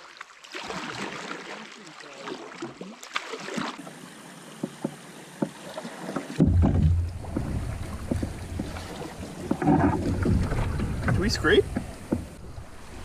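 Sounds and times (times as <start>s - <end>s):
water washing around a canoe hull: 0.0s - 13.0s
paddle stroke knocks: 4.6s - 12.4s.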